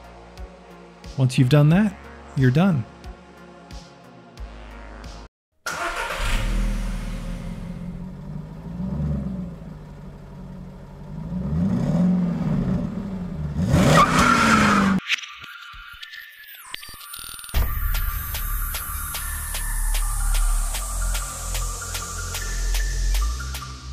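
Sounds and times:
car engine revving: 5.7 - 15.0.

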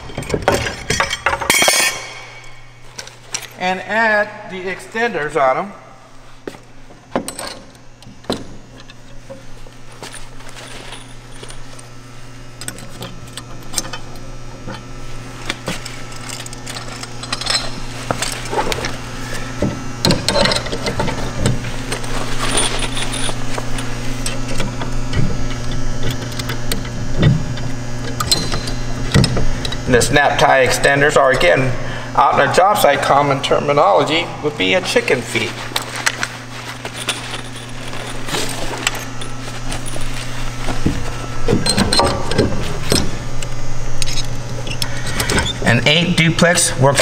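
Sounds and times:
steady low hum: 0.0 - 47.0
metal hardware clinking: 0.1 - 3.6, 16.1 - 18.8.

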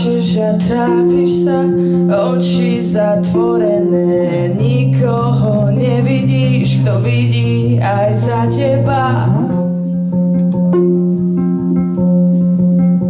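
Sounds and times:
woman singing: 0.0 - 9.8
electric guitar chords: 0.0 - 13.0.

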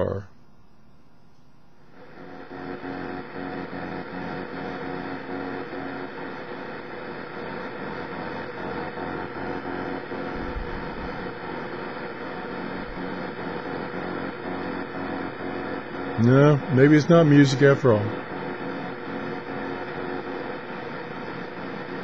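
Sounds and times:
radio static hiss: 1.9 - 22.0
faint radio signal tones: 13.2 - 22.0.

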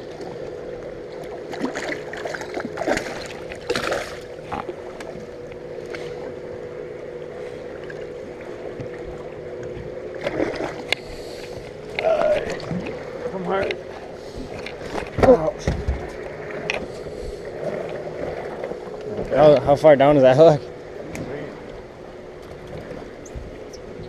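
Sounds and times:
boat engine hum: 0.0 - 24.0
fish splashing in water: 1.5 - 4.8.

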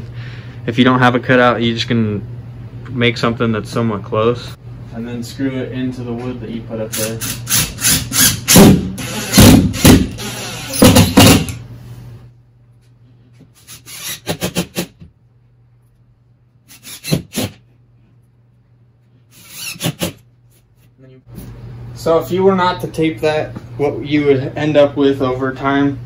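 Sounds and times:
cordless drill driving screws: 7.0 - 11.5, 13.6 - 14.9, 16.7 - 17.6, 19.3 - 20.2.

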